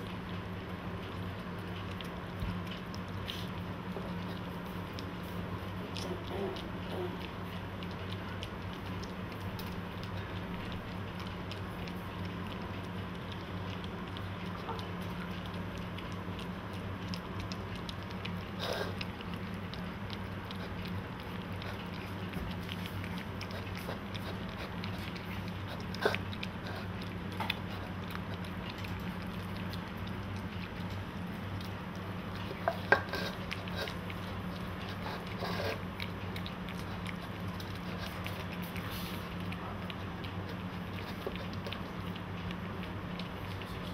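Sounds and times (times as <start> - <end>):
puppies chewing and lapping: 0.0 - 43.9
steady low hum: 0.0 - 43.9.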